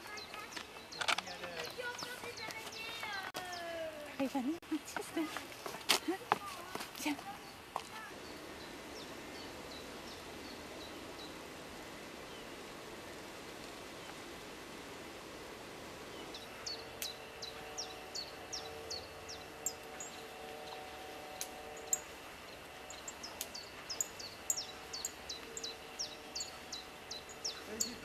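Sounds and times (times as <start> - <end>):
steady hiss: 3.9 - 28.0
faint hum: 6.4 - 28.0
bird chirping: 16.1 - 28.0.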